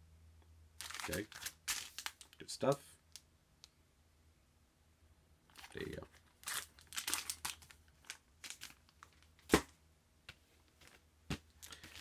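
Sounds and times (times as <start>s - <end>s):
record sleeves crinkling and sliding: 0.8s - 2.8s, 5.5s - 9.7s, 10.3s - 12.0s
sharp knocks of record jackets: 9.4s - 9.8s.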